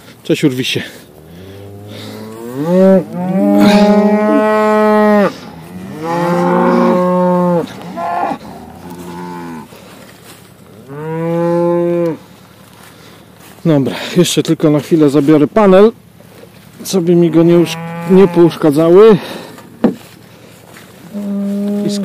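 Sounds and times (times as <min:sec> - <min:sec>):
cattle mooing: 0:01.0 - 0:09.8, 0:10.7 - 0:12.3, 0:17.2 - 0:18.9, 0:21.1 - 0:22.0.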